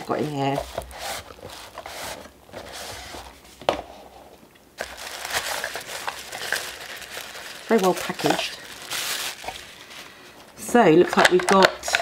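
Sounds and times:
tissue paper crinkling: 0:04.8 - 0:10.6.

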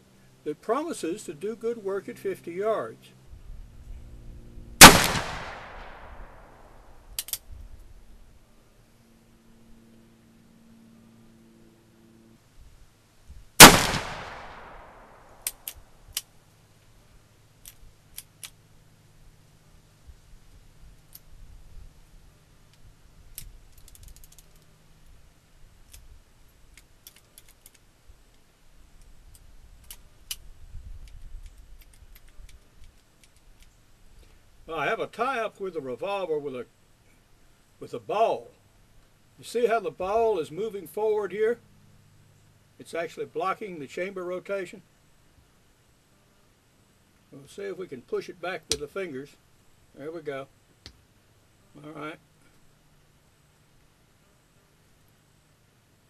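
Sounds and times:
revolver gunshot with echo: 0:04.8 - 0:06.6, 0:13.6 - 0:15.2
revolver hammer cocking clicks: 0:07.2 - 0:07.4
revolver action metal clicks: 0:07.2 - 0:07.5, 0:13.6 - 0:16.3, 0:22.7 - 0:24.7, 0:26.7 - 0:28.4, 0:29.0 - 0:33.8.

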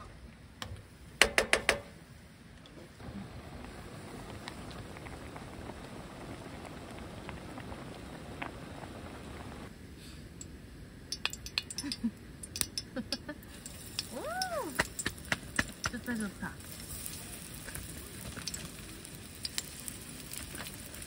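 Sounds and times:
gas burner hiss: 0:02.7 - 0:21.0
stew bubbling: 0:03.0 - 0:09.7, 0:11.1 - 0:21.0
tongs clinking on a pan: 0:11.1 - 0:13.0.

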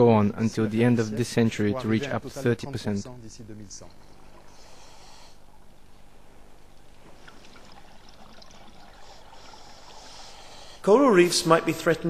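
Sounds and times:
underwater rushing ambience: 0:05.6 - 0:10.6.

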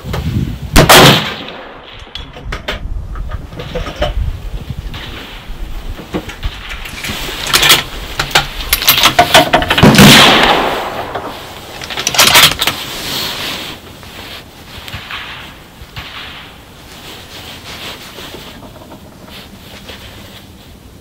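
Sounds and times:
hands rustling: 0:11.2 - 0:21.0.

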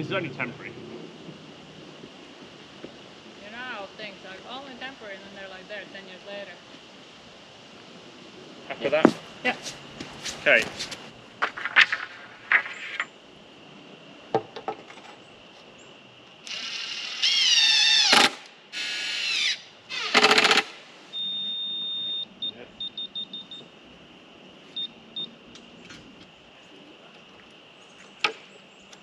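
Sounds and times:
electronic beeper: 0:21.2 - 0:23.6.

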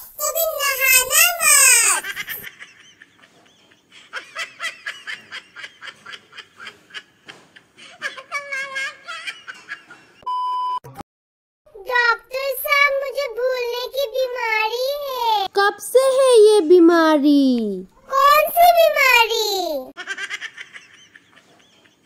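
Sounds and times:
giggling: 0:01.8 - 0:10.2, 0:20.0 - 0:22.0.

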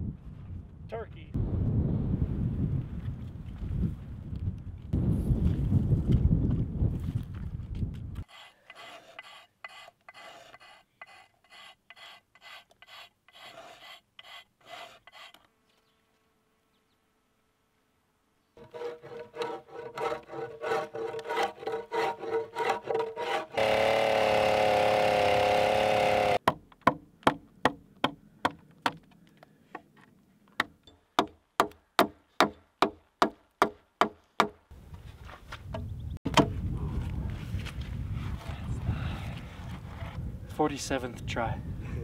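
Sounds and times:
wind noise on microphone: 0:00.0 - 0:08.3, 0:34.7 - 0:42.0
mallet striking chisel into log: 0:30.6 - 0:34.6, 0:36.3 - 0:36.5.

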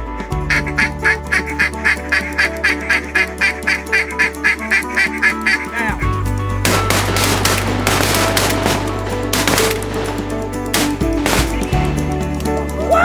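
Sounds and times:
background music with drone: 0:00.0 - 0:13.0
duck call quacks: 0:00.5 - 0:06.1.

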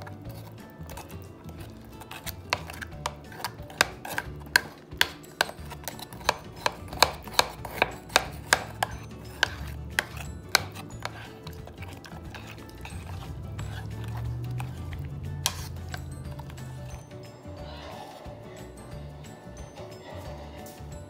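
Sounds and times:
metal spoon knocking against bowl: 0:02.2 - 0:11.6.

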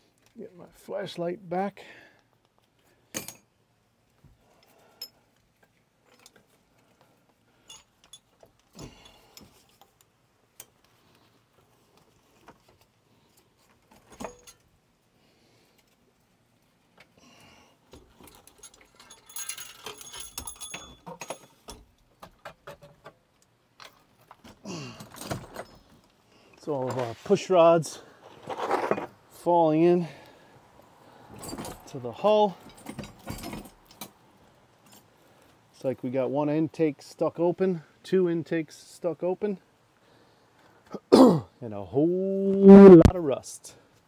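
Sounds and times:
metal tools clinking and rattling: 0:03.1 - 0:03.5, 0:07.6 - 0:09.7, 0:13.9 - 0:14.7, 0:17.9 - 0:22.0, 0:31.4 - 0:34.2.

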